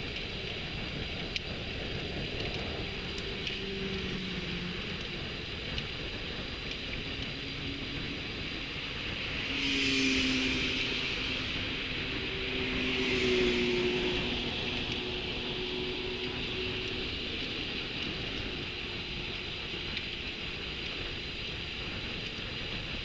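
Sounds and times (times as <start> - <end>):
bicycle tyre noise: 0.0 - 23.0
cars passing: 0.0 - 23.0
wind rush: 0.0 - 23.0
faint ticks: 0.1 - 7.5.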